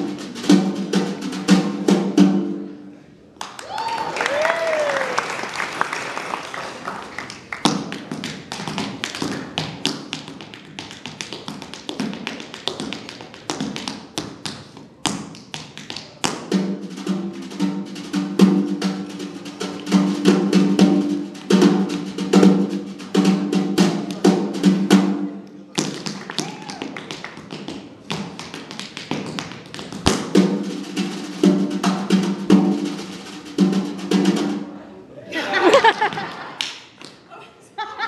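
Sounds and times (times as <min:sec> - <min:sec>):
snare drum played with sticks: 0:00.0 - 0:02.8, 0:07.7 - 0:34.7
tap shoes on wooden floor: 0:07.6 - 0:16.5, 0:25.8 - 0:30.4.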